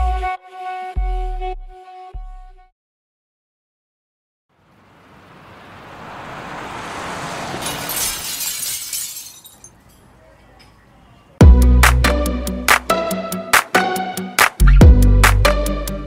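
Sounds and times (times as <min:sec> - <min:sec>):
pop music with heavy bass: 0:11.4 - 0:16.0.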